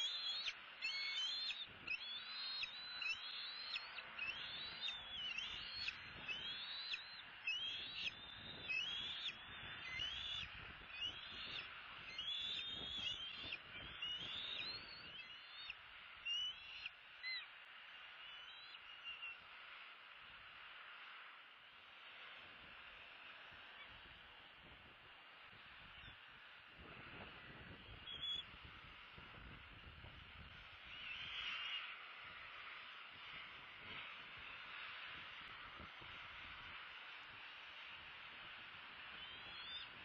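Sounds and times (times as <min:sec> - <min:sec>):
eagles whistled calls: 0:00.0 - 0:17.5, 0:18.2 - 0:19.4, 0:27.7 - 0:28.5, 0:30.8 - 0:32.8, 0:39.1 - 0:40.0.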